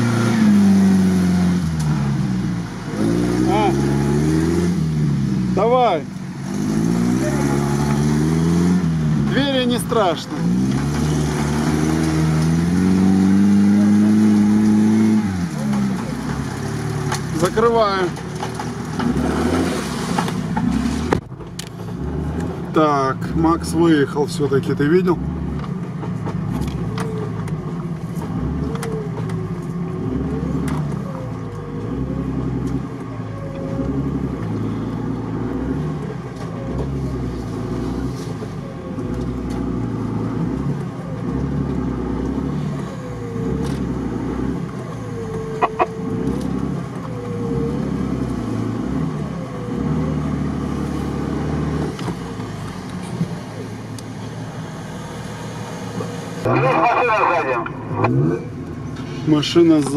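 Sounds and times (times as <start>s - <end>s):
engine revving: 0.0s - 59.9s
wheels spinning in mud: 9.3s - 21.1s.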